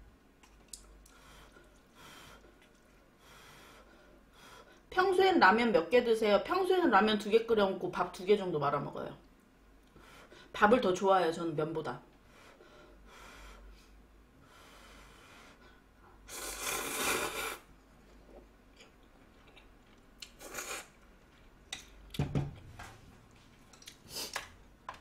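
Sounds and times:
chewing: 0.4 - 3.1, 18.0 - 22.0
person slurping noodles: 16.3 - 17.7, 20.4 - 21.0.

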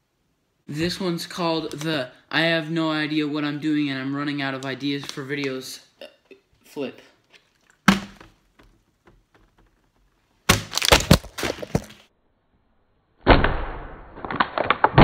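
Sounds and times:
bottles clattering and knocking: 7.3 - 10.0
plastic bottle striking tabletop: 7.8 - 9.8.

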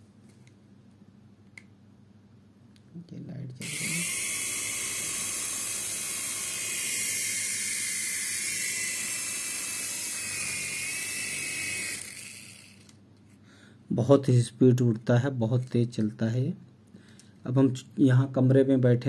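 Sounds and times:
toy helicopter motor whine: 3.6 - 13.0.

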